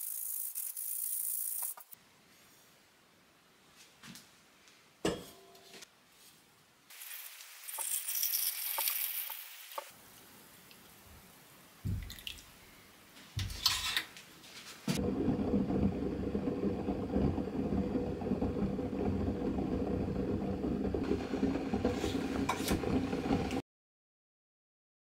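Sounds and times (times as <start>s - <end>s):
pot being stirred: 15.0s - 23.6s
pot boiling and bubbling: 15.0s - 23.6s.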